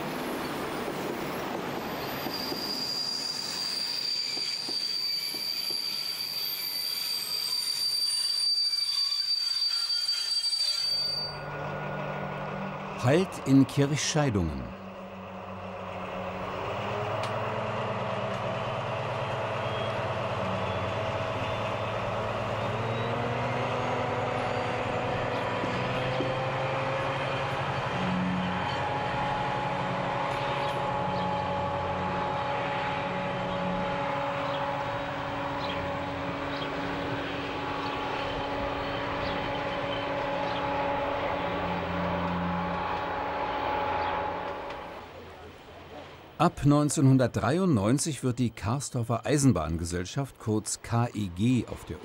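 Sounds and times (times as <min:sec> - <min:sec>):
locomotive engine running under load: 0:11.3 - 0:46.4
rising whine: 0:14.5 - 0:45.3.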